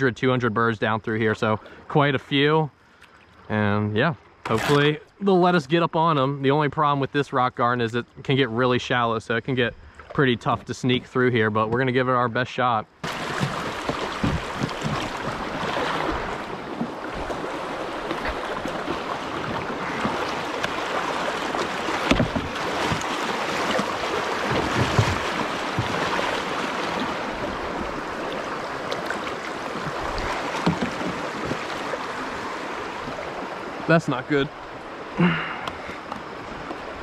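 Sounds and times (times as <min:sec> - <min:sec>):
paddle splashes: 0:13.0 - 0:37.0
water rushing over rocks: 0:13.0 - 0:37.0.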